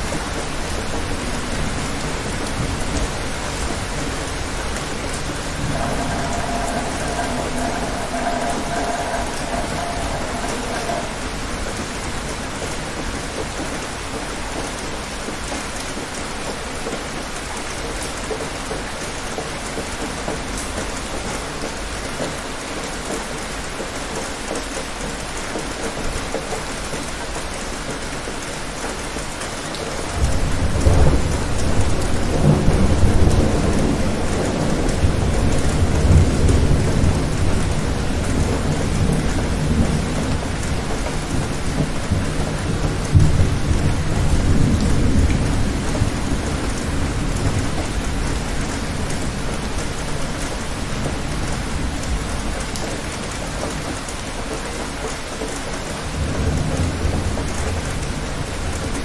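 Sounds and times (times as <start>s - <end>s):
steady rain falling: 0.0s - 59.0s
thunder rumbling: 1.0s - 13.3s.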